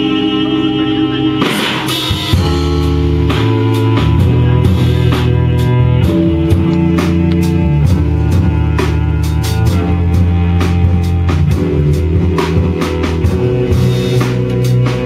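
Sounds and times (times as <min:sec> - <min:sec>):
drum kit beat: 0:00.0 - 0:15.0
cello notes: 0:02.3 - 0:15.0.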